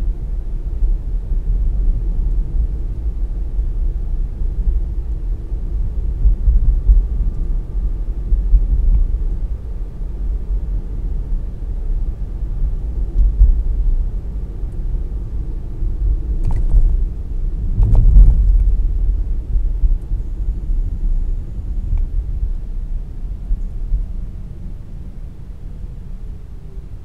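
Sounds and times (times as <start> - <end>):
car road and engine noise: 0.0 - 27.0.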